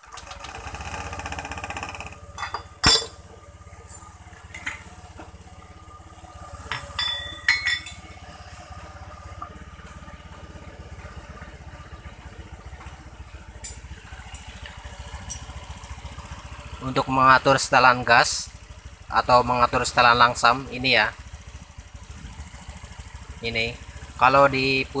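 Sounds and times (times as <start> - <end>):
scooter engine starting and idling: 0.0 - 25.0
metallic clinks: 2.4 - 3.2, 6.7 - 8.1.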